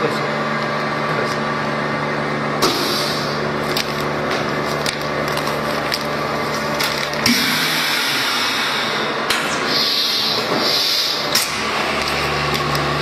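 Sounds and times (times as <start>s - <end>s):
vacuum pump hum: 0.0s - 13.0s
air hissing: 7.3s - 11.4s.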